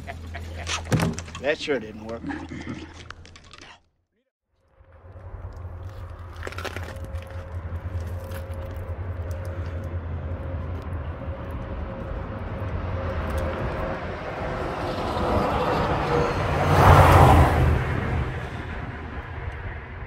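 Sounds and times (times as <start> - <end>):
highway traffic rumble: 4.8 - 20.0.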